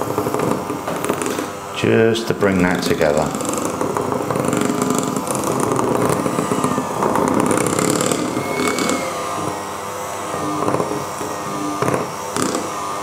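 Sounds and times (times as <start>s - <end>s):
electric hand mixer running: 0.0s - 13.0s.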